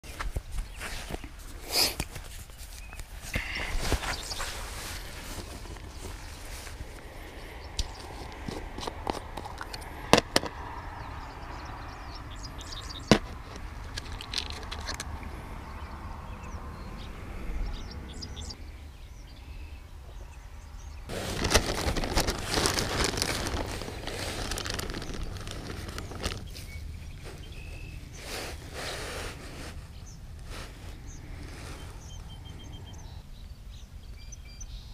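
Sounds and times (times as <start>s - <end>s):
hands handling fishing tackle: 7.8s - 10.6s, 13.1s - 15.2s, 21.1s - 27.5s
plastic bag crinkling: 21.1s - 26.7s.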